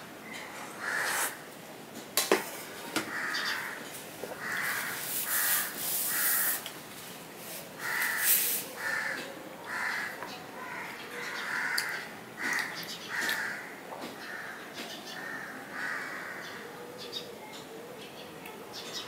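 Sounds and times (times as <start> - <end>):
crows cawing: 0.8 - 1.4, 3.0 - 6.6, 7.8 - 16.6.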